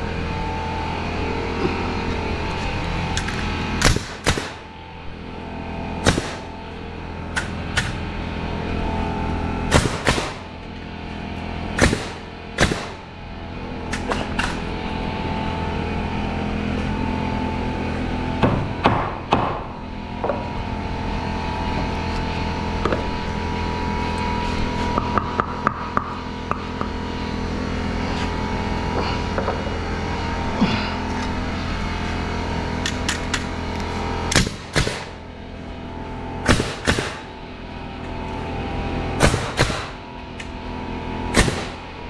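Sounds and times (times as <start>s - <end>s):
nail gun shots into wood: 3.8s - 4.6s, 6.0s - 6.4s, 9.7s - 10.4s, 11.8s - 13.0s, 34.3s - 35.2s, 36.5s - 37.3s, 39.2s - 40.0s, 41.4s - 41.8s
hammer on wood: 18.4s - 19.6s.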